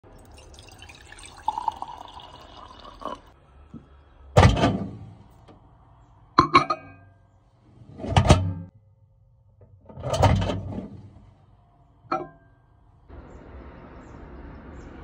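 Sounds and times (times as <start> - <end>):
water pouring into glass jar: 0.0 - 3.4
glass jar clinking on glass: 0.3 - 3.3, 12.1 - 12.4.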